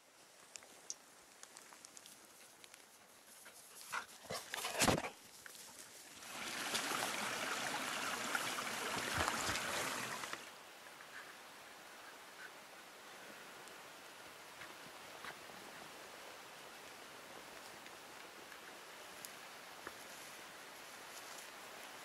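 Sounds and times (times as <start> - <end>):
brook rushing over stones: 3.7 - 10.5.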